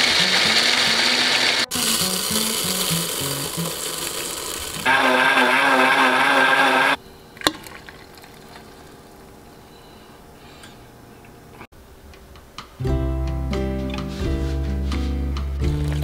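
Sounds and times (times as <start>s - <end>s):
blender motor running: 0.0s - 7.0s.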